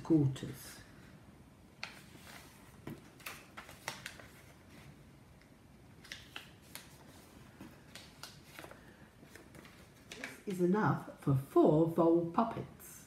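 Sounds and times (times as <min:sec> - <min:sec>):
stiff paper crackling: 0:01.8 - 0:05.0, 0:06.0 - 0:10.5.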